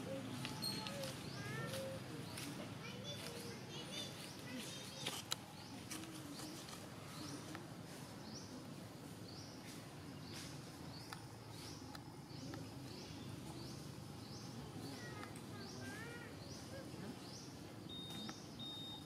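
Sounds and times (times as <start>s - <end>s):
low even background noise: 0.0s - 19.0s
short high chirping call: 17.9s - 19.0s.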